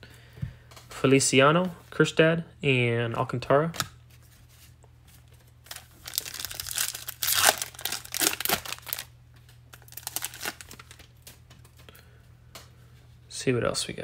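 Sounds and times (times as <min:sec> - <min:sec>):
foil wrapper tearing and crinkling: 0:05.6 - 0:09.1, 0:09.7 - 0:11.4.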